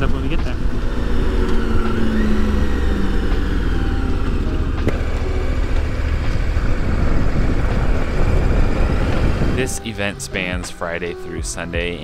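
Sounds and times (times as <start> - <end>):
motorcycle engine drone: 0.0 - 12.0
wind rush on microphone: 6.1 - 9.8.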